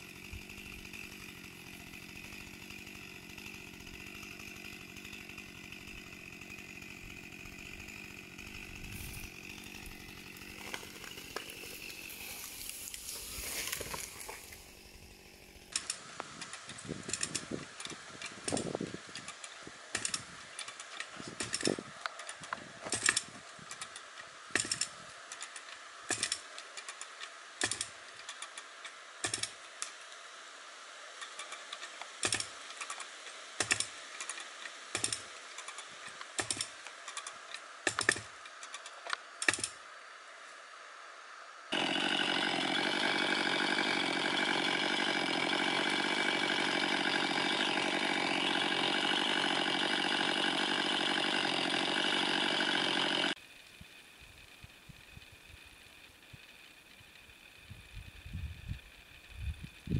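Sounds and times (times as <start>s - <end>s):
chainsaw idling: 0.0s - 39.8s, 41.7s - 59.9s
hand winch ratchet clicks: 15.7s - 30.0s, 31.2s - 39.8s.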